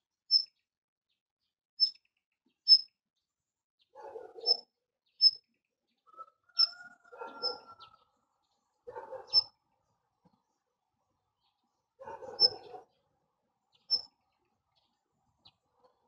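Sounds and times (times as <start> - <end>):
bird chirping: 0.3 - 0.6, 1.8 - 2.9, 3.9 - 9.5, 11.4 - 13.0, 13.7 - 15.9
rough bird chatter: 0.3 - 0.6, 1.8 - 2.9, 3.8 - 9.5, 11.4 - 13.1, 13.7 - 16.0.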